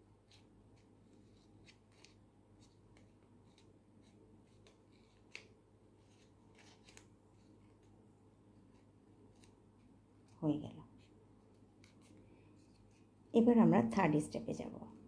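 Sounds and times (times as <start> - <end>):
paper crinkling: 1.1 - 7.9.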